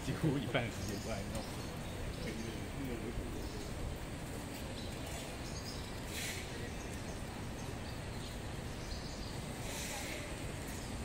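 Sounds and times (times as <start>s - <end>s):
low city rumble: 0.0s - 11.0s
swallows twittering: 0.5s - 3.8s, 4.7s - 11.0s
brief hiss: 6.1s - 6.6s.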